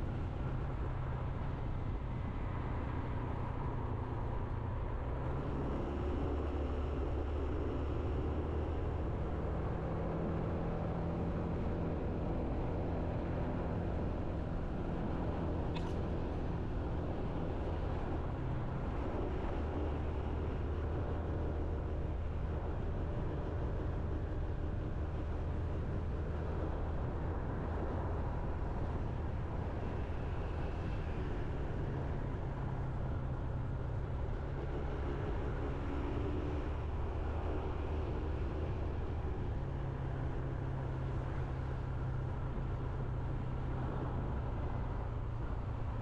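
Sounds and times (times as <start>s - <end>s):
road and wind noise: 0.0s - 46.0s.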